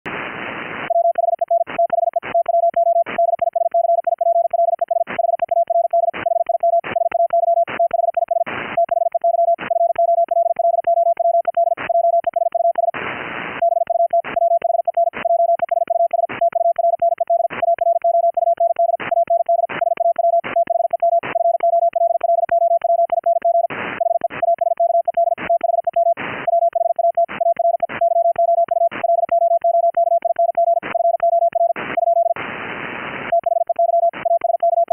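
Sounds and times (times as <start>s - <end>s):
radio hiss: 0.1s - 0.9s
morse code tone: 0.9s - 12.9s, 13.6s - 32.4s, 33.3s - 34.9s.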